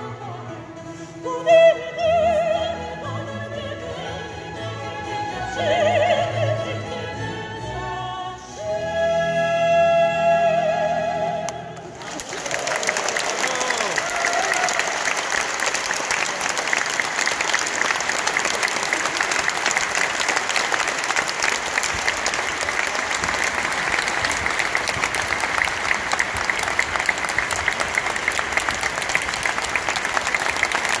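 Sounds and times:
audience applauding: 11.8s - 31.0s.

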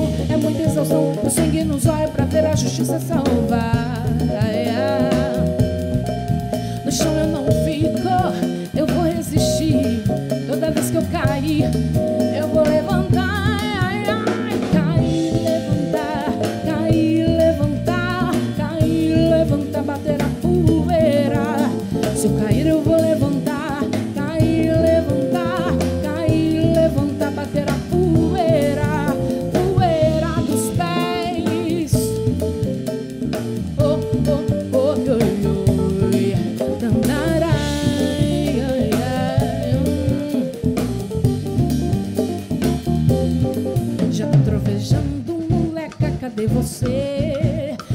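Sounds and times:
congas: 0.0s - 47.9s
drum kit: 0.0s - 47.9s
electric bass: 0.0s - 47.9s
wavering lead melody: 11.5s - 35.2s.

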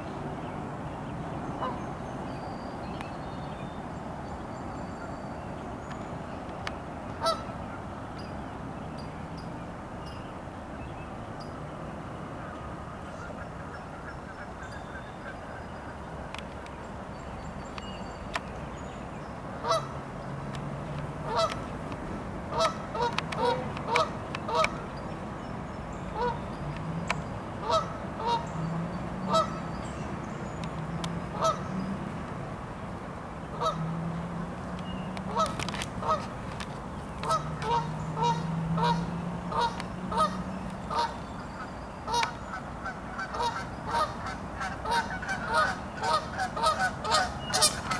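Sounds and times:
geese honking: 7.2s - 7.6s, 19.6s - 20.0s, 21.2s - 21.6s, 22.5s - 24.8s, 26.1s - 26.4s, 27.6s - 28.6s, 29.3s - 29.6s, 31.3s - 31.8s, 33.5s - 33.9s, 35.3s - 36.4s, 37.2s - 41.3s, 42.0s - 47.9s.

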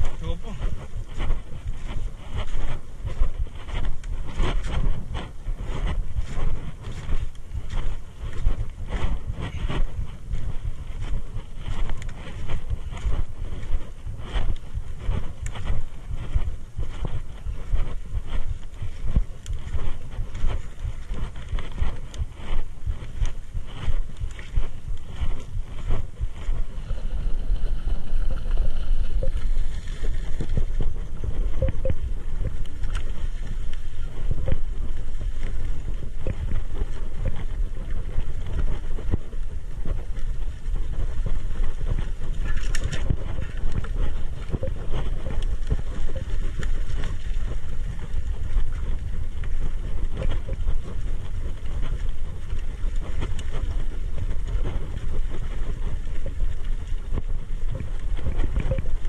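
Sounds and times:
tyres rumbling on dirt trail: 0.0s - 59.0s
wind buffeting microphone: 0.0s - 59.0s
bike clicks and rattles: 18.5s - 59.0s.

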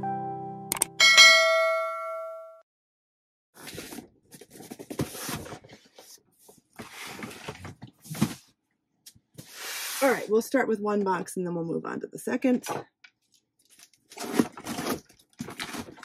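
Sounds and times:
button click: 0.7s - 1.0s
bright bell chime: 1.0s - 2.6s
cardboard box rustling and scraping: 3.6s - 8.5s, 14.1s - 16.0s.

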